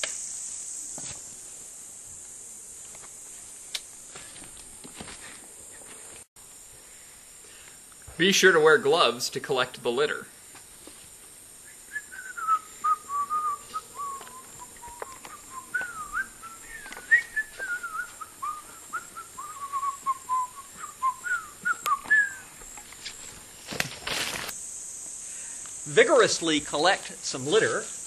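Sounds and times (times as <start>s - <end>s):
high insect drone: 0.0s - 28.0s
person whistling a tune: 11.7s - 22.5s.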